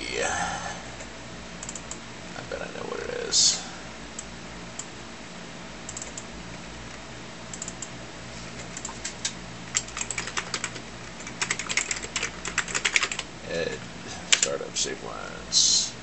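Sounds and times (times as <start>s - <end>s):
steady low hum: 0.0s - 16.0s
keyboard typing: 1.6s - 2.0s, 5.9s - 6.3s, 7.5s - 7.9s, 8.6s - 13.3s.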